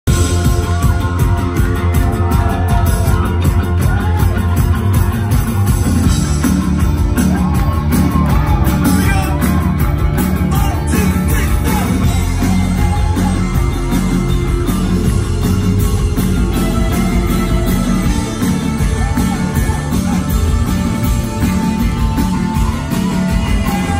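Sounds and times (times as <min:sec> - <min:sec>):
rock band playing live: 0:00.0 - 0:23.9
person singing: 0:10.4 - 0:13.5.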